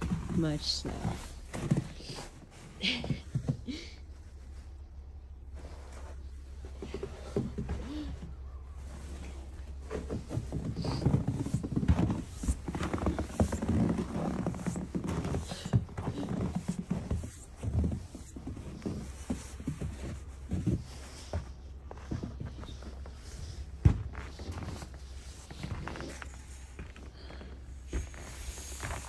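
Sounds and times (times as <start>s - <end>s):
footsteps in snow on deck: 0.0s - 29.0s.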